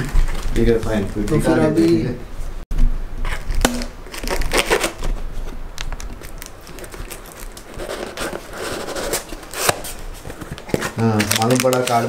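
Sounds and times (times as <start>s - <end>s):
cardboard and tape rustling: 3.2s - 12.0s.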